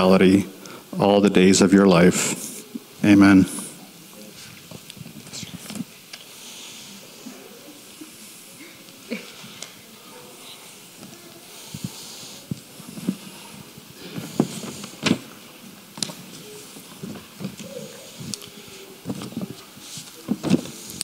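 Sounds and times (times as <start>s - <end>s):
faint hiss: 0.0s - 21.0s
microphone handling noise: 11.7s - 15.4s, 16.0s - 21.0s.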